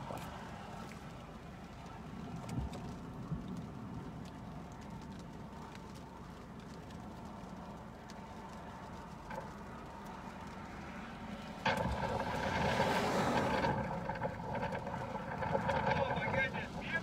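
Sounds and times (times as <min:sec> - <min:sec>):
windshield wiper sweeping: 0:05.6 - 0:17.0
car cabin hum: 0:11.6 - 0:17.0.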